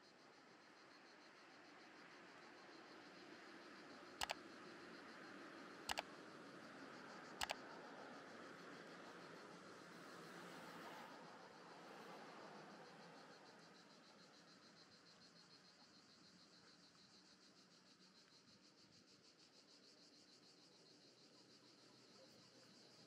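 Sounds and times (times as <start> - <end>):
passing traffic hiss: 7.4 - 13.6.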